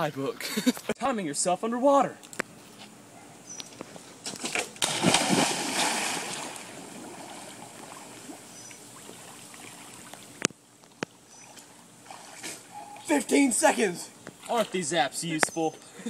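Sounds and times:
settling water: 4.4 - 15.1
big splash into pool: 4.5 - 8.4.

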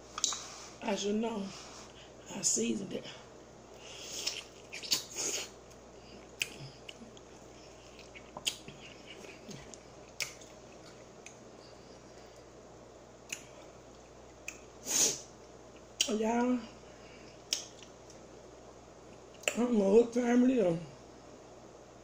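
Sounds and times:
wet mouth smacks and clicks: 0.2 - 0.4, 4.2 - 5.5, 10.1 - 10.5, 13.2 - 13.5, 17.5 - 18.2
person chewing chicken: 3.8 - 12.4.

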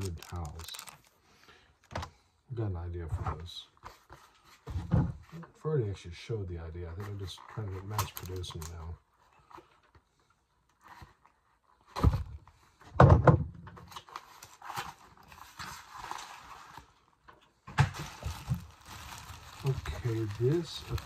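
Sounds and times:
packing paper crinkling: 0.0 - 1.2, 7.0 - 8.9, 17.9 - 21.0.

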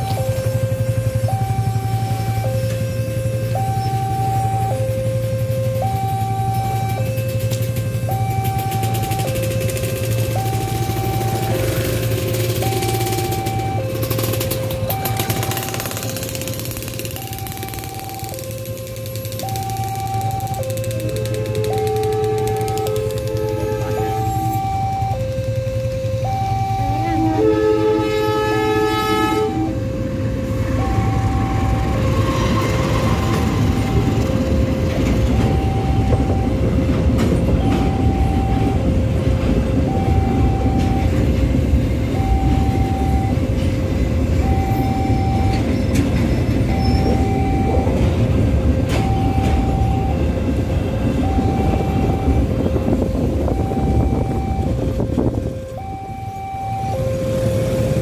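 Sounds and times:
train wheels rumbling on rails: 0.0 - 58.0
two-tone crossing alarm: 0.0 - 58.0
train horn: 21.5 - 24.6, 26.8 - 29.8.

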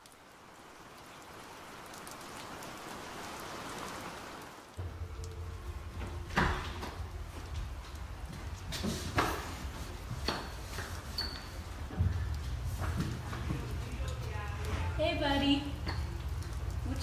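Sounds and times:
rain hiss: 0.0 - 17.0
low steady hum: 4.7 - 17.0.

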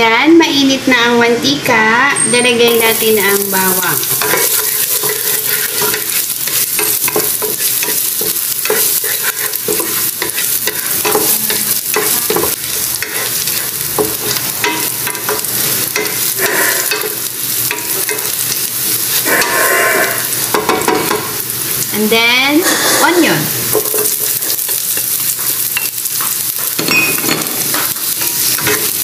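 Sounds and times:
garlic sizzling in oil: 1.6 - 29.0
spatula scraping pan: 2.7 - 21.2, 22.5 - 26.7, 27.3 - 29.0.

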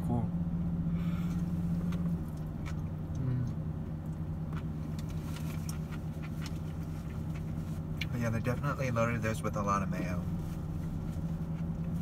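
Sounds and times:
car engine idling: 0.0 - 12.0
chewing: 1.8 - 8.2.

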